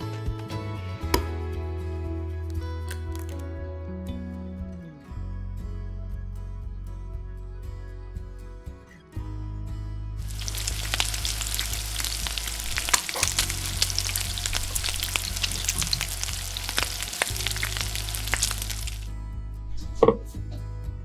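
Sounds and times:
egg frying with sharp pops: 10.2 - 19.1.

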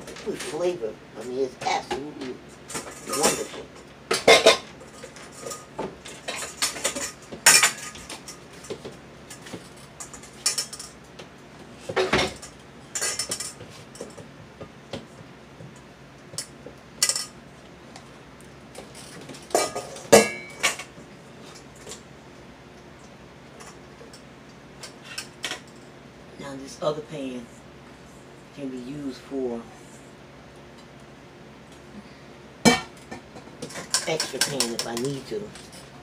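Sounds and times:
metal pots and pans clanking: 2.7 - 8.8, 19.5 - 20.9, 32.7 - 35.8.

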